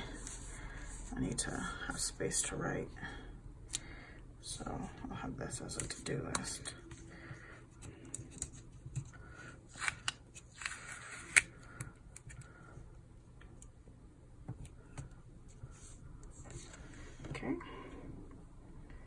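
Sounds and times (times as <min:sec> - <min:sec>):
paper rustling and scraping: 0:09.7 - 0:11.5.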